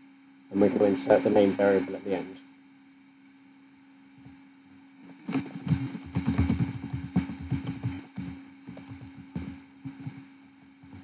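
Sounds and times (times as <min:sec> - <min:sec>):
faint steady hum: 0:00.0 - 0:11.0
computer keyboard typing: 0:05.2 - 0:09.6.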